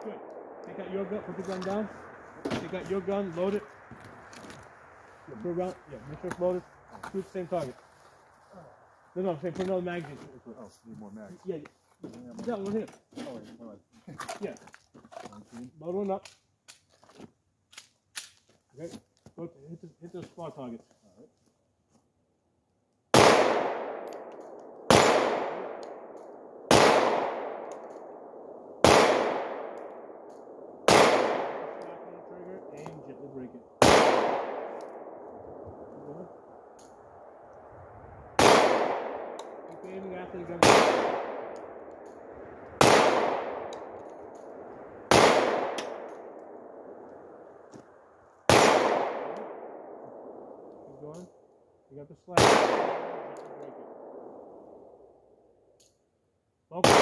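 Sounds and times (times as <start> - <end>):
pistol shots: 23.1 - 32.2, 33.8 - 35.2, 38.4 - 46.9, 48.5 - 50.6, 52.3 - 54.5, 56.8 - 57.0.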